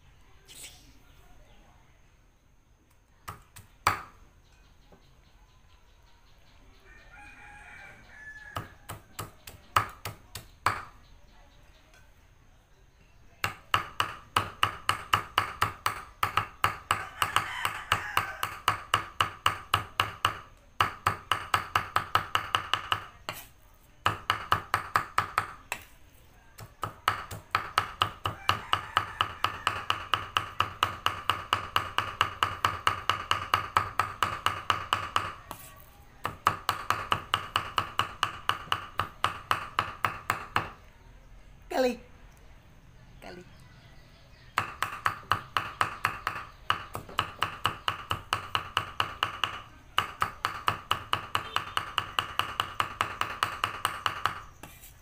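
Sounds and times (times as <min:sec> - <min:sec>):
cleaver chopping on wooden block: 0:03.3 - 0:04.2, 0:08.5 - 0:11.0, 0:13.4 - 0:25.9, 0:26.6 - 0:40.8, 0:44.6 - 0:54.9.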